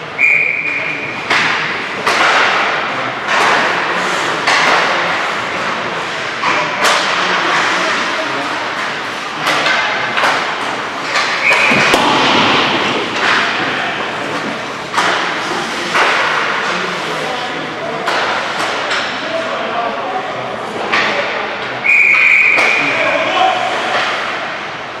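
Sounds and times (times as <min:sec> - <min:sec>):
pucks and sticks clacking: 0:00.2 - 0:19.6, 0:20.7 - 0:24.7.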